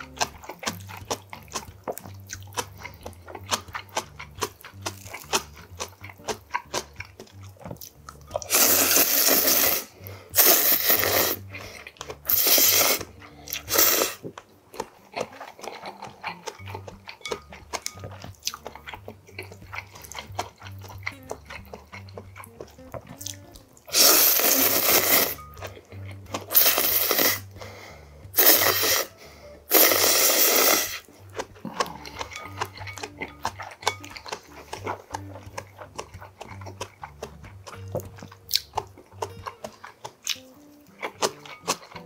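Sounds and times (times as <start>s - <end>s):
wet chewing clicks: 0.0s - 42.0s
loud noodle slurps: 8.4s - 14.3s, 23.9s - 25.4s, 26.4s - 27.6s, 28.3s - 32.4s.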